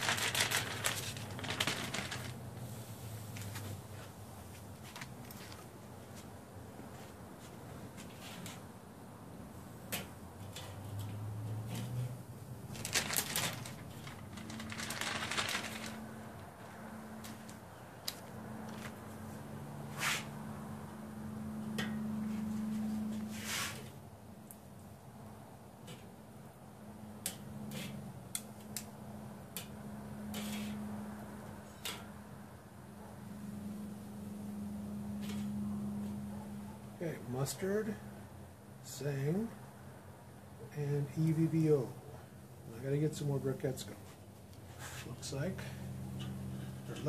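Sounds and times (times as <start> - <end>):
tongs clicking and scraping on grill grate: 27.2 - 28.9
metal tongs clicking on grill grate: 28.3 - 28.9.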